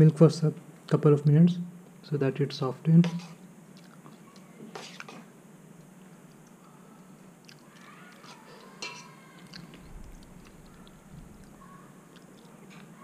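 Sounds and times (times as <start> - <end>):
quiet chewing of cereal: 3.7 - 13.0.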